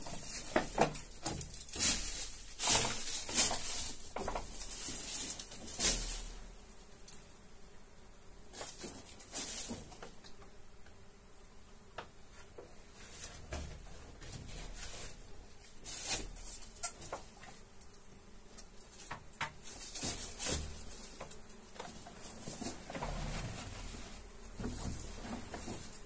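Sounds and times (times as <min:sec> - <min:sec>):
dry leaves rustling and crackling: 0:00.0 - 0:06.5, 0:08.6 - 0:09.9, 0:15.7 - 0:16.9, 0:19.6 - 0:26.0.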